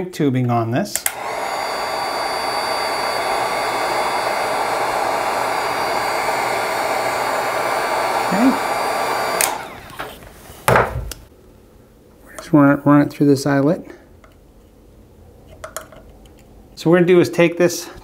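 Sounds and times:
heat gun blowing: 0:01.0 - 0:11.3.

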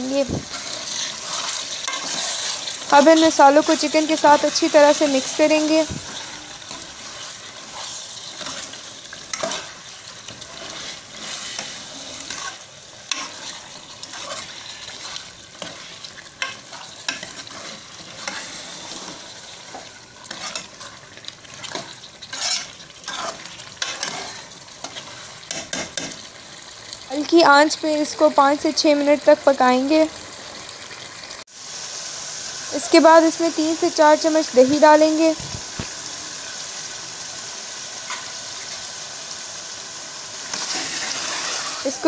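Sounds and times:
chicken sizzling in a pot: 0:00.0 - 0:42.0
metal ladle scraping a pot: 0:00.4 - 0:02.8, 0:05.2 - 0:26.1.

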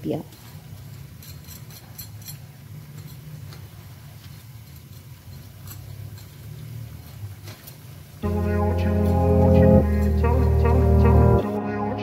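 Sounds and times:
food deep-frying in hot oil: 0:00.0 - 0:08.2.

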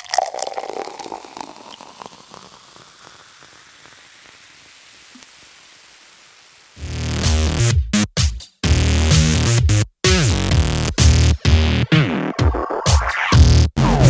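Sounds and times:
juice pouring into bottle: 0:00.0 - 0:05.2.

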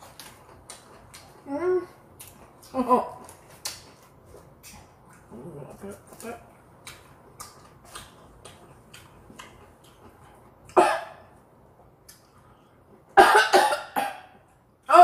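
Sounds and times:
faint chewing clicks: 0:00.0 - 0:01.5, 0:02.1 - 0:10.8, 0:12.0 - 0:12.7
woman coughing: 0:10.8 - 0:11.2, 0:13.2 - 0:14.3.

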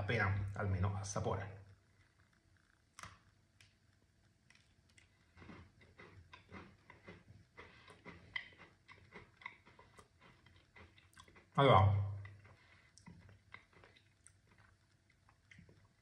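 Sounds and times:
person chewing crunchy biscuit: 0:04.4 - 0:16.0.

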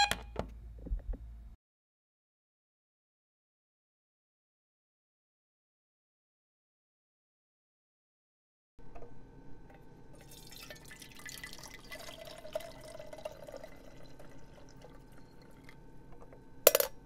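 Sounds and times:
liquid dripping and trickling: 0:10.2 - 0:15.8.

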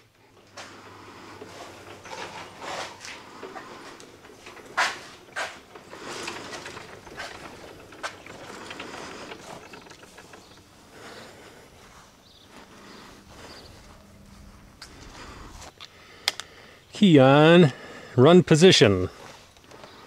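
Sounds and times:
rolling tyres rattling: 0:00.0 - 0:16.4
footsteps on grass: 0:11.7 - 0:15.7.

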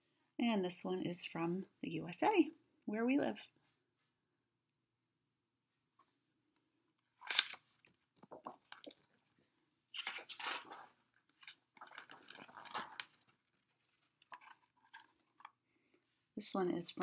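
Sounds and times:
book pages rustling: 0:07.0 - 0:15.6.

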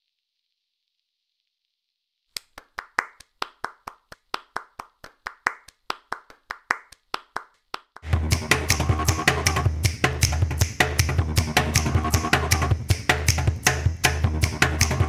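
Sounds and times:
person clapping hands: 0:02.4 - 0:09.2, 0:09.9 - 0:15.0.

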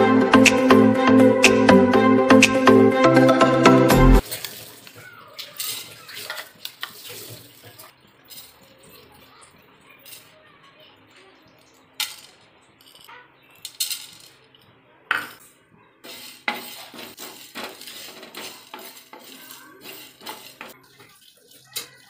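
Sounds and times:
seeds rattling and scraping in pan: 0:04.2 - 0:10.4, 0:11.0 - 0:22.0.

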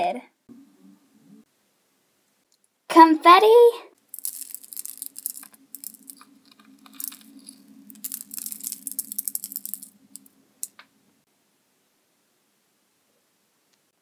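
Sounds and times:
low steady hum: 0:00.3 - 0:02.8, 0:04.0 - 0:13.9
confetti ticking on tabletop: 0:04.1 - 0:06.3, 0:06.9 - 0:10.8.

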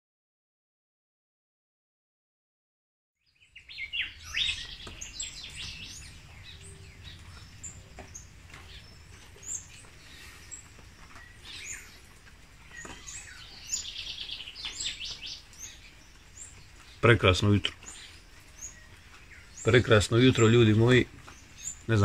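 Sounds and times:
songbirds singing and chirping: 0:03.2 - 0:22.0.

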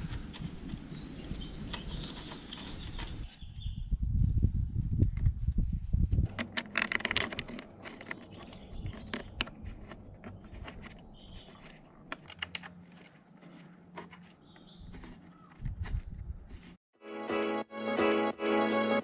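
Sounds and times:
hands handling metal fastener: 0:06.3 - 0:16.8.

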